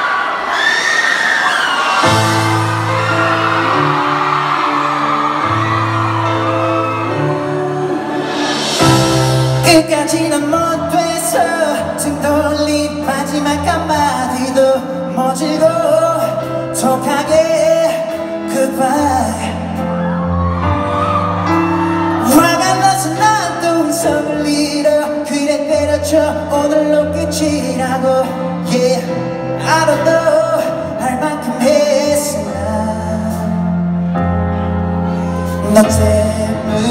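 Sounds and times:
crowd cheering: 0.0 - 9.4, 19.8 - 23.2
bass and keyboard backing track: 2.0 - 36.9
man singing ballad: 5.8 - 36.9.

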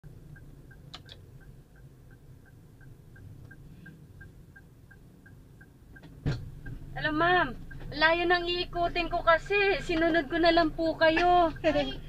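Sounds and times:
road and engine rumble: 0.0 - 12.0
turn signal ticking: 0.0 - 12.0
sharp clicks: 0.7 - 1.5.

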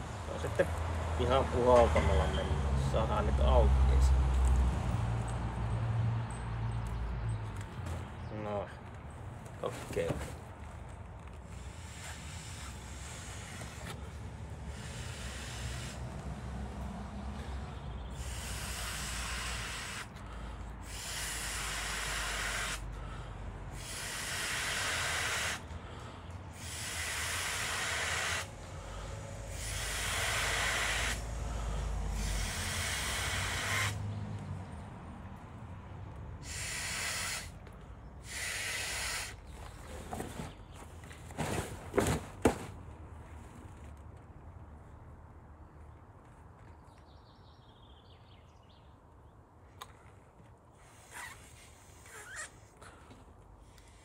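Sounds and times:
person blowing into air valve: 11.5 - 16.1, 18.1 - 20.2, 20.8 - 22.9, 23.7 - 25.7, 26.5 - 34.0, 36.4 - 37.6, 38.2 - 39.5.

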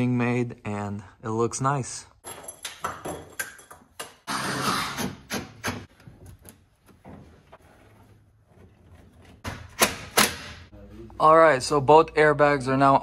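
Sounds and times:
rustling and scraping: 5.9 - 9.4.

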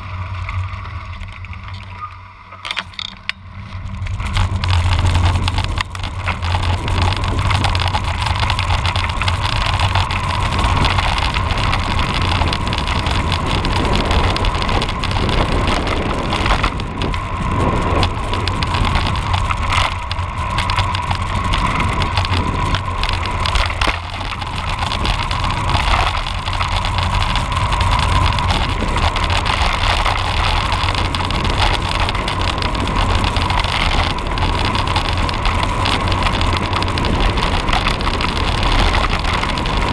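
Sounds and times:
bike tyres rolling on road: 0.0 - 39.9
wind on microphone: 3.6 - 39.9.

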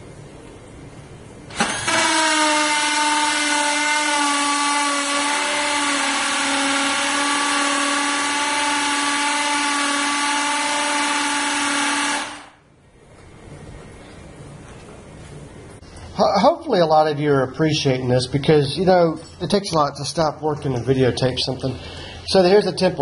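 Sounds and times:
drill whining through steel: 1.5 - 12.6.

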